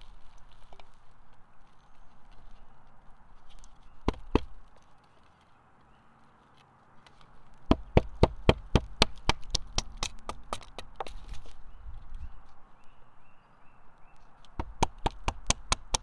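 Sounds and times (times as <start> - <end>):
knocks on wood: 4.0 - 4.5, 7.7 - 11.1, 14.6 - 16.0.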